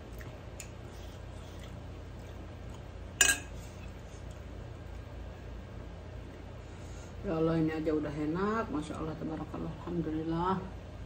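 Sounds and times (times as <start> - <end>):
metal spoon clinking on ceramic dish: 3.2 - 3.6.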